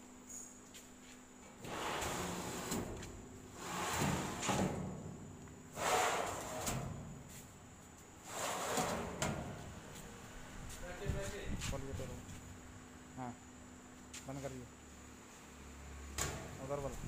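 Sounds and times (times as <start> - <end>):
metal drawer sliding on runners: 1.6 - 3.0, 3.6 - 4.9, 5.7 - 7.0, 8.3 - 9.5.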